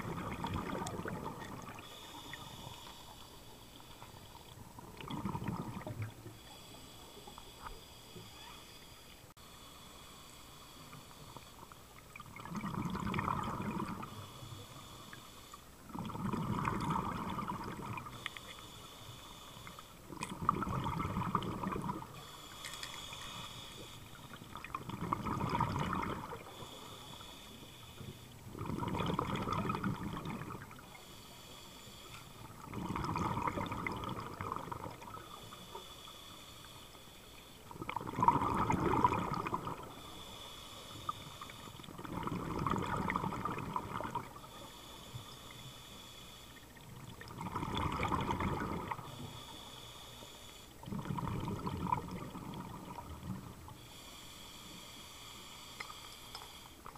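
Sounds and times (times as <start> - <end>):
rush of bubbles: 0.0 - 1.8, 4.8 - 6.1, 12.3 - 14.1, 15.9 - 18.1, 20.2 - 22.1, 24.5 - 26.5, 28.5 - 30.8, 32.6 - 35.1, 37.8 - 39.9, 41.9 - 44.4, 47.2 - 49.0, 50.8 - 53.6
regulator hissing inhale: 1.8 - 4.6, 6.2 - 12.0, 14.0 - 15.8, 18.0 - 20.1, 22.0 - 24.4, 26.2 - 28.4, 30.6 - 32.6, 34.8 - 37.8, 39.7 - 41.9, 44.2 - 47.0, 49.0 - 50.9, 53.7 - 56.9.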